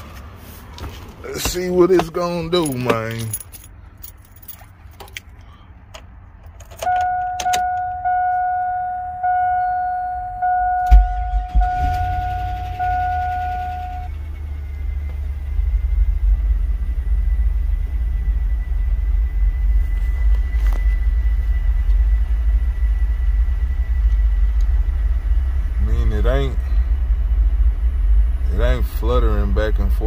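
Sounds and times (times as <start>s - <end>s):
faint steady whine: 6.6s - 30.0s
dashboard warning chime: 6.8s - 15.0s
truck engine idling: 7.0s - 30.0s
truck engine cranking: 10.7s - 15.6s.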